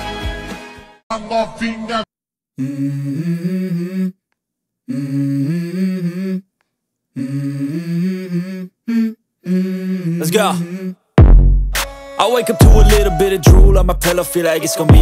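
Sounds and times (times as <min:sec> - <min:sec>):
person humming a melody: 0:02.6 - 0:04.2, 0:04.9 - 0:06.5, 0:07.1 - 0:11.1, 0:12.4 - 0:15.0.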